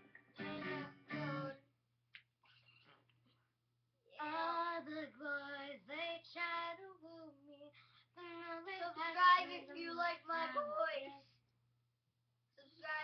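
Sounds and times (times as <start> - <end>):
girl singing: 0.4 - 1.6, 4.1 - 11.3.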